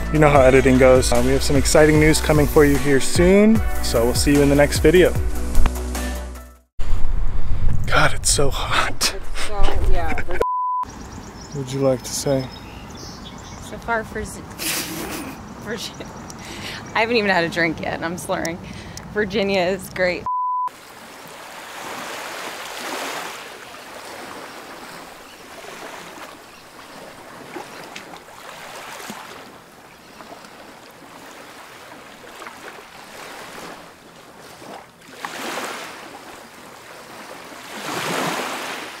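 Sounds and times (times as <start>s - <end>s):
ocean waves on rocky shore: 20.7s - 39.0s.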